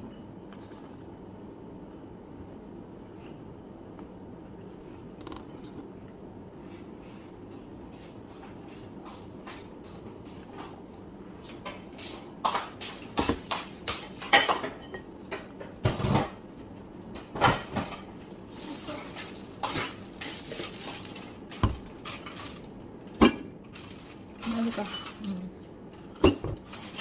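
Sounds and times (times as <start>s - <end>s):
tableware clinking: 26.2s - 26.6s.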